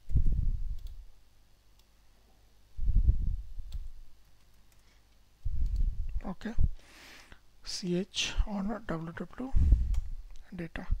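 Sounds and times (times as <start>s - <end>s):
computer mouse clicks: 0.0s - 1.1s, 3.6s - 5.9s, 9.9s - 10.4s
muffled low thumps: 2.8s - 3.9s.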